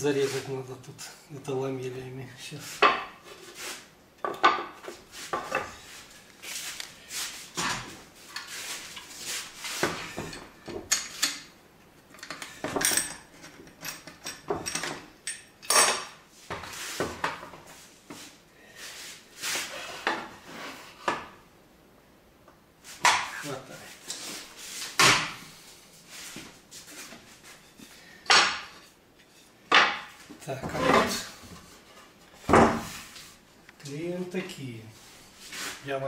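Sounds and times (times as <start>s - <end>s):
wooden knocks and clatter on workbench: 2.8s - 3.2s, 4.2s - 5.8s, 7.6s - 8.4s, 12.2s - 15.1s, 15.7s - 17.7s, 23.0s - 23.3s, 24.9s - 25.4s, 28.3s - 28.9s, 29.7s - 31.7s, 32.4s - 33.0s.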